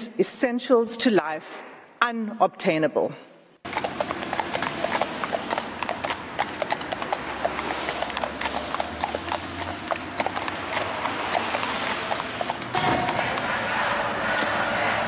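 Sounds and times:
horse hooves clip-clopping on pavement: 3.6 - 13.6.

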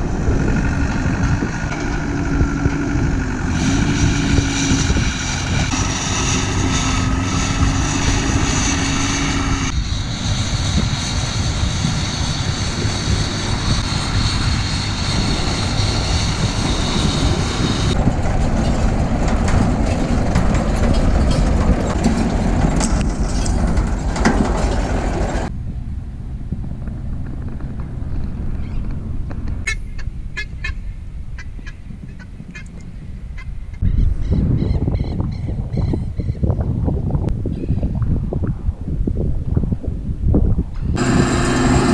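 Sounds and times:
round baler running: 0.0 - 29.7, 40.8 - 41.9
tractor engine whining: 0.0 - 30.6, 40.8 - 41.9.

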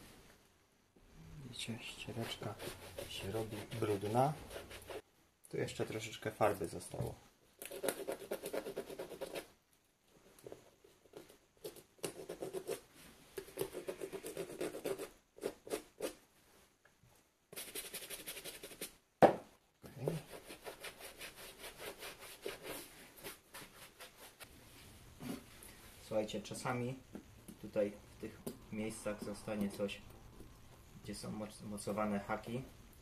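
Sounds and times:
bristle brush scrubbing: 2.0 - 5.0
scratching and rubbing on suede: 2.0 - 5.0, 20.0 - 24.5.

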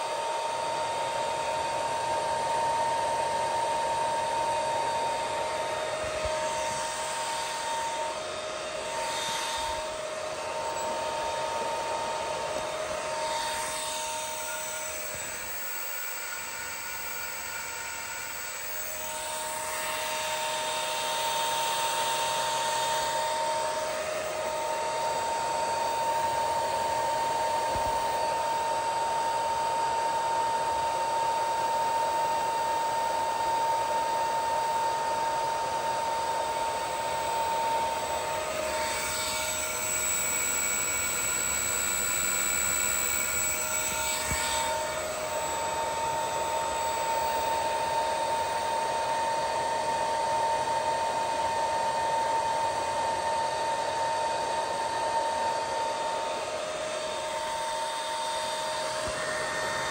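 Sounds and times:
constant electronic whine: 0.0 - 59.9
cooling fan whir: 0.0 - 59.9.

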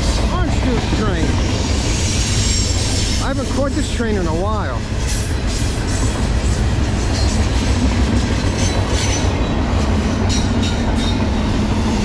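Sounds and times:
train wheels rumbling on rail: 0.0 - 12.0
high wheel squeals: 1.5 - 3.3.

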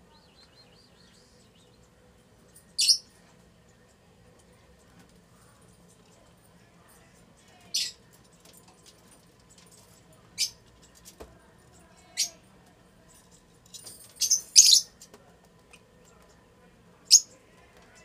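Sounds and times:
lovebirds chirping shrilly: 2.8 - 3.1, 14.2 - 14.9.

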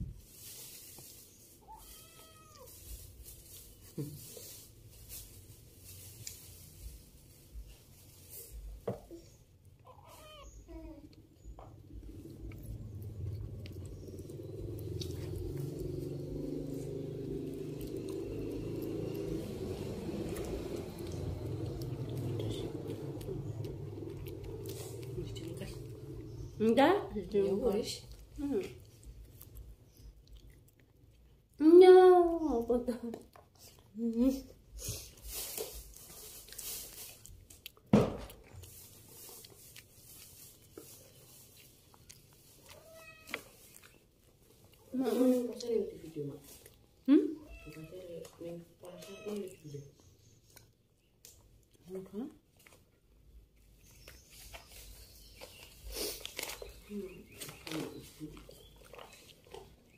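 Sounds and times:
cat purring: 10.7 - 29.4.

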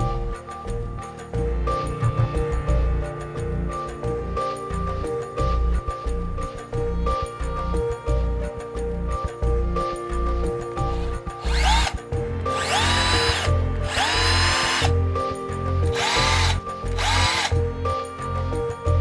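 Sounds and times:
polisher motor whining: 12.6 - 14.9, 16.0 - 17.5.

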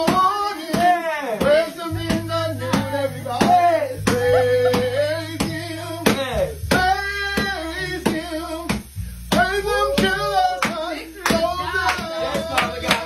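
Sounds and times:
person singing: 0.0 - 13.0
hand clapping in time: 4.0 - 6.8, 8.0 - 13.0.

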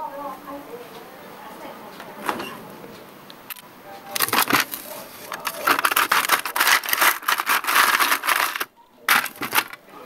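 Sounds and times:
ice cubes clattering and scraping: 4.2 - 9.8
plastic ice drawer pulled open: 4.2 - 9.8.

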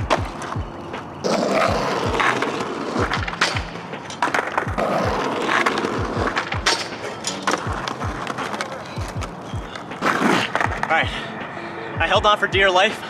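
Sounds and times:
skateboard clacking: 0.0 - 11.0
skateboard rolling on asphalt: 0.0 - 11.2
music with steady beat: 0.0 - 13.0.

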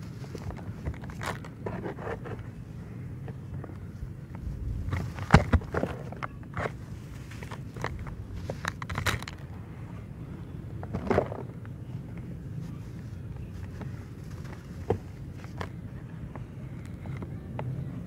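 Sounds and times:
dry soil crumbled by hand: 0.0 - 2.6, 3.2 - 9.5, 10.8 - 15.9.

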